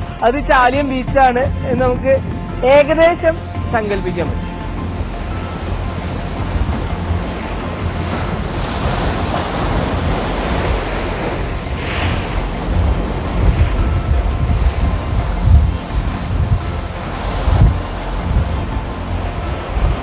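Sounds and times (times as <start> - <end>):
wind buffeting microphone: 4.1 - 20.0
surf breaking on rocks: 5.0 - 20.0.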